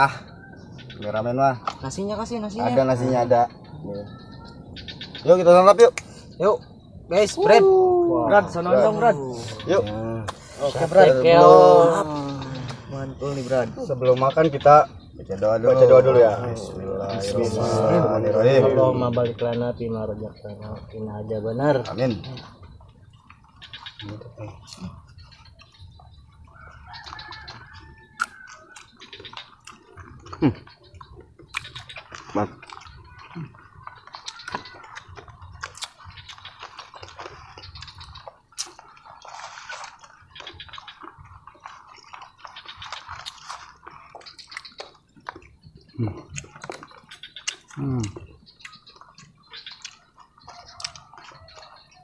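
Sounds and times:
chewing mouth smacks: 0:28.1 - 0:51.8.

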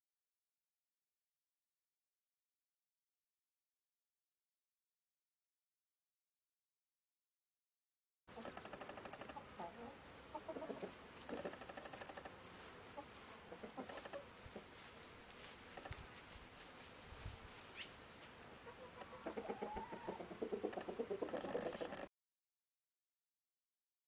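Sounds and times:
chickens clucking: 0:08.3 - 0:14.9, 0:18.6 - 0:22.1.

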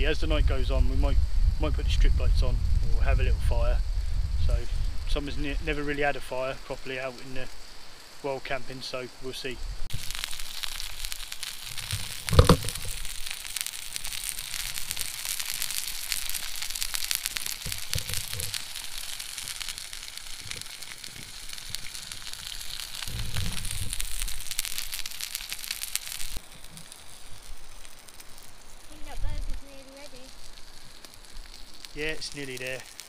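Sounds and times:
burger sizzling in a frying pan: 0:00.0 - 0:33.0
loud thump: 0:12.3 - 0:12.9.

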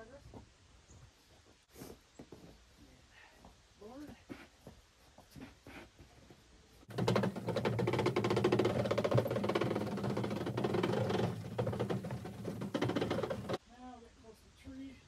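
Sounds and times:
gear chatter: 0:06.9 - 0:13.6
winch motor whining: 0:06.9 - 0:13.6.

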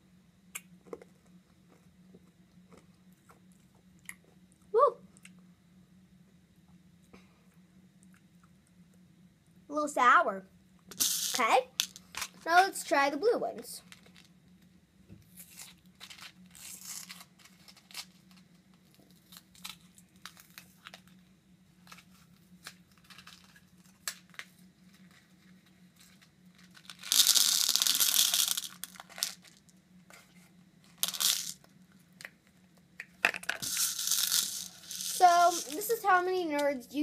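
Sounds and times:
faint steady hum: 0:00.0 - 0:37.0
candies poured into plastic bowl: 0:10.9 - 0:12.3, 0:26.6 - 0:29.6, 0:31.0 - 0:31.6, 0:33.4 - 0:36.1.

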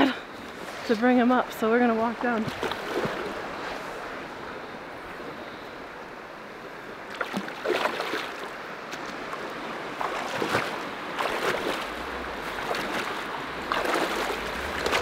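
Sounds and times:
stream flowing: 0:00.0 - 0:15.0
wader steps splashing in water: 0:10.0 - 0:15.0.

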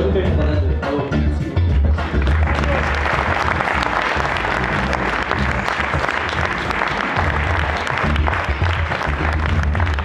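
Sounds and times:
low background music: 0:00.0 - 0:10.0
crowd applauding: 0:02.0 - 0:10.0.

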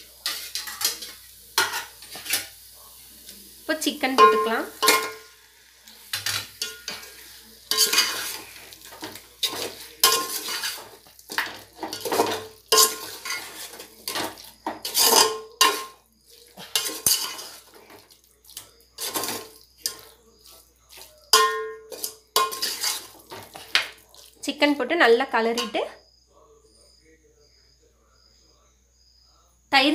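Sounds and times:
metal ladle scraping a pot: 0:07.7 - 0:15.9, 0:16.6 - 0:17.9, 0:19.0 - 0:20.1, 0:21.3 - 0:23.5.

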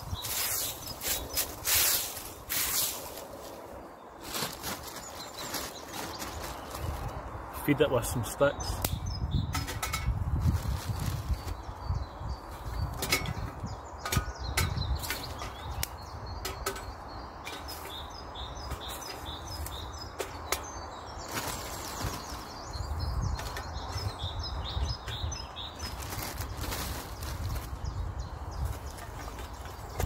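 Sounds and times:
plastic bag rustling: 0:00.2 - 0:07.2, 0:10.4 - 0:11.6, 0:21.2 - 0:22.6, 0:25.8 - 0:27.8.

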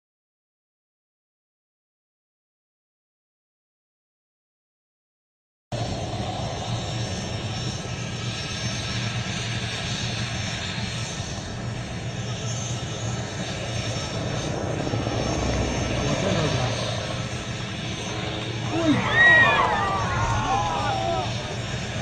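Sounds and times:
helicopter rotor noise: 0:05.8 - 0:22.0.

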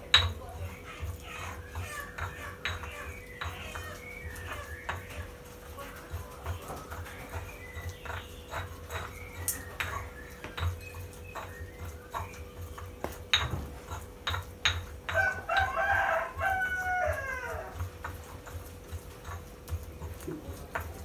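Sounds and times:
rooster crowing: 0:15.1 - 0:18.0.

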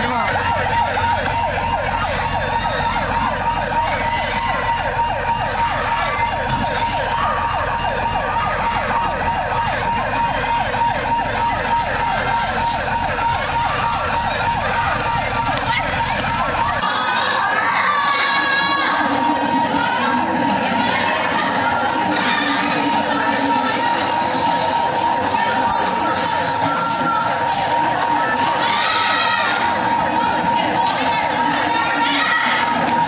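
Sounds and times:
siren yelping: 0:00.0 - 0:33.0.

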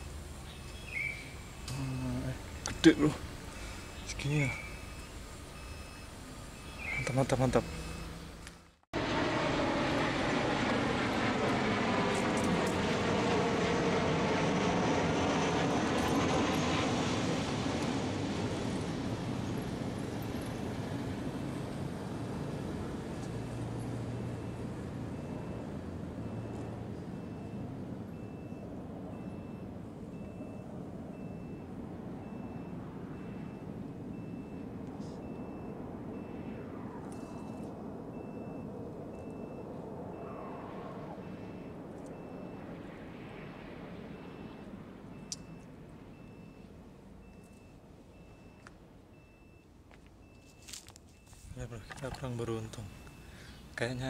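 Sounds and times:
engine running: 0:00.0 - 0:48.5
reversing alarm beeping: 0:00.6 - 0:08.3, 0:24.3 - 0:42.7, 0:44.1 - 0:53.6
motorcycle passing: 0:31.2 - 0:45.2.

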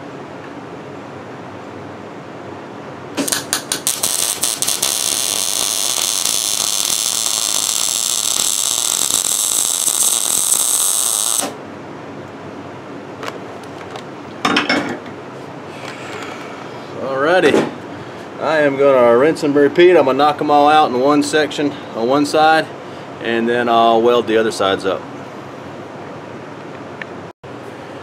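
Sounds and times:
welder arc crackling: 0:03.2 - 0:11.6.

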